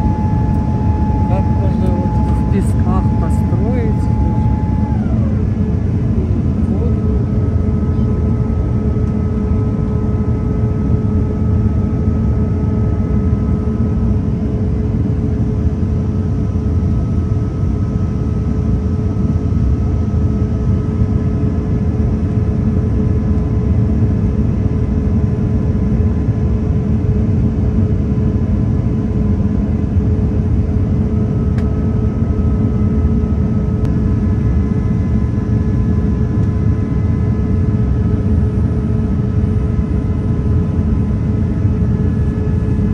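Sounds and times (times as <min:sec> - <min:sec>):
jet engines roaring: 0:00.0 - 0:09.8
steady hum tones: 0:00.0 - 0:16.0, 0:30.0 - 0:42.9.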